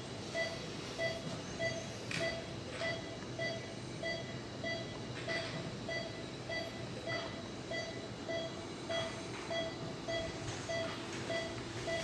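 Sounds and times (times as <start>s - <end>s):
patient monitor beeping: 0.3s - 12.0s.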